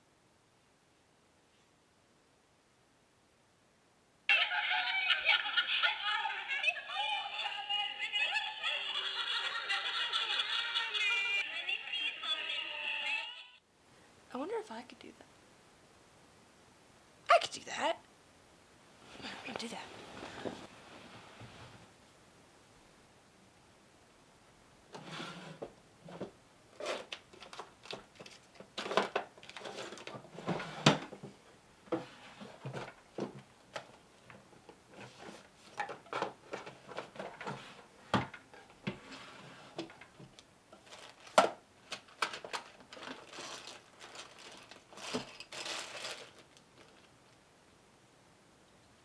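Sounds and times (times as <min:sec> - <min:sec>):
rustling: 0:19.0 - 0:22.0, 0:24.9 - 0:47.4
wooden drawer sliding: 0:24.9 - 0:26.2, 0:29.7 - 0:31.1, 0:38.9 - 0:39.9.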